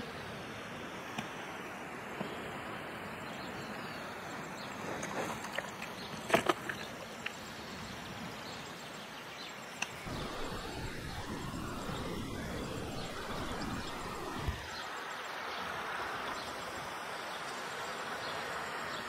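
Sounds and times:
steady hiss: 9.5 - 19.0
wind gusting on microphone: 10.1 - 14.9.

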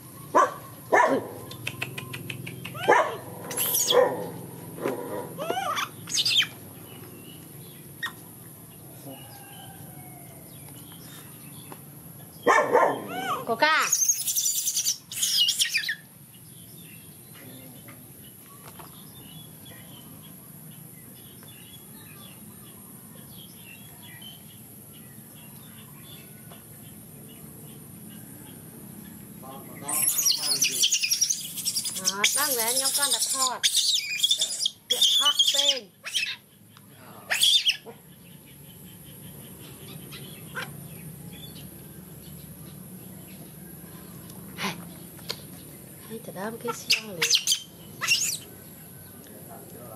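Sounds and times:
faint chirps and ticks: 1.5 - 2.8
baby monkey squeal: 2.7 - 4.0, 5.4 - 6.6, 8.0 - 8.2, 13.1 - 16.0, 29.9 - 36.5, 37.3 - 37.9, 46.6 - 48.5
high insect drone: 24.6 - 35.9.

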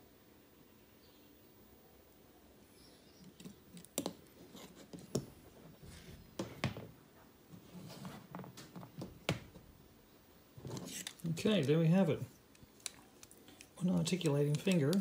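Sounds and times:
light rubbing: 10.6 - 15.0.

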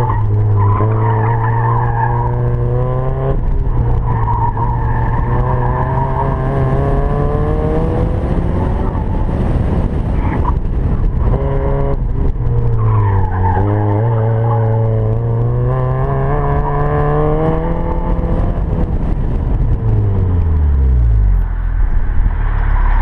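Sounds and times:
tires squealing: 0.0 - 7.9, 12.5 - 18.0, 21.3 - 23.0
car engine pulling hard: 0.0 - 23.0.

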